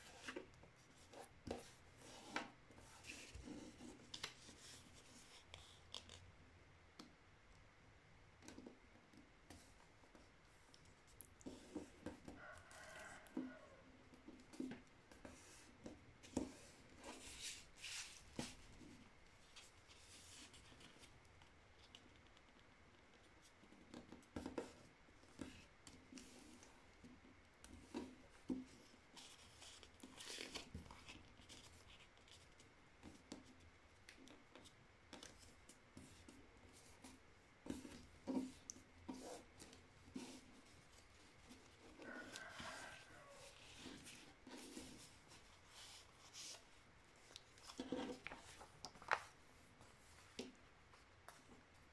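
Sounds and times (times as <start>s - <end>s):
paper being folded and creased: 29.2s - 32.5s, 40.7s - 50.4s.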